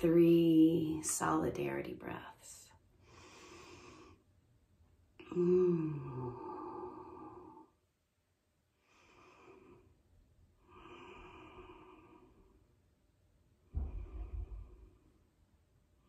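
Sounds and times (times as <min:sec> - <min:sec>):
woman breathing deeply: 0:02.9 - 0:04.3, 0:08.7 - 0:12.7, 0:13.6 - 0:15.3.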